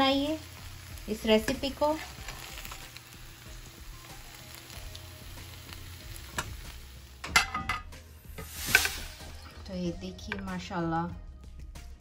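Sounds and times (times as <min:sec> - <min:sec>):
food sizzling in a wok: 0:00.0 - 0:10.8
spatula scraping a wok: 0:08.2 - 0:09.6.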